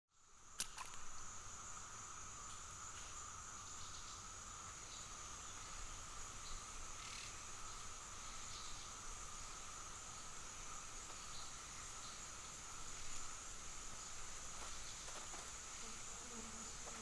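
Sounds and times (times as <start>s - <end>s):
faint hiss: 0.1s - 17.0s
insect chorus drone: 0.1s - 17.0s
sharp click: 0.6s - 1.0s.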